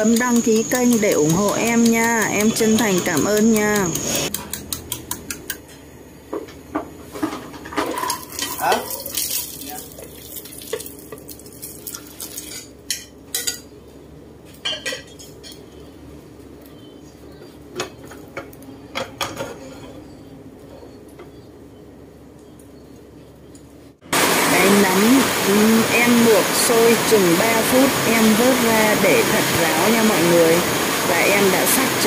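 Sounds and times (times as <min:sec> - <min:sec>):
utensils clinking on pan and bowl: 0:07.4 - 0:09.6, 0:11.9 - 0:13.7, 0:14.6 - 0:15.7.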